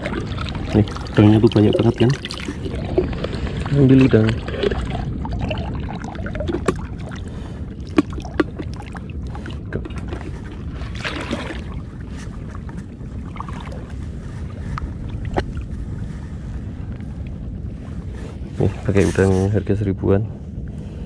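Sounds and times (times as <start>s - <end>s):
sea: 0.0s - 21.0s
wind on microphone: 0.0s - 21.0s.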